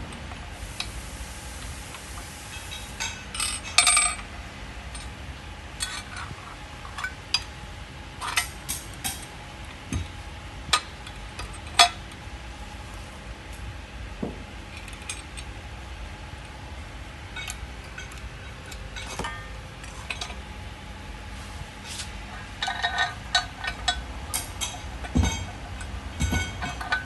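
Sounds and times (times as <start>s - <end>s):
steel parts clinking: 22.3s - 27.0s.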